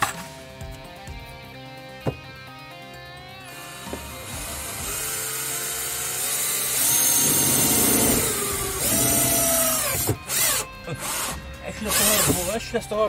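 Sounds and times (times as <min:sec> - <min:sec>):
cordless drill boring plastic: 0:03.5 - 0:12.6.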